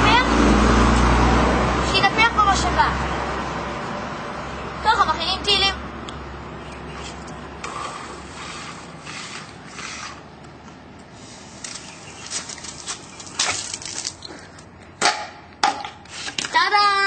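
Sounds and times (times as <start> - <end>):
hand air pump hissing: 7.6 - 10.2.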